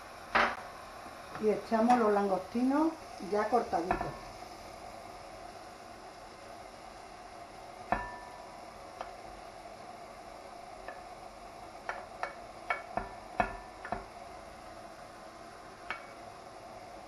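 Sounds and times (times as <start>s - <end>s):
faint sizzling in pan: 0.0s - 17.0s
spoon clicking on plate and pan: 11.8s - 14.1s, 15.8s - 16.2s.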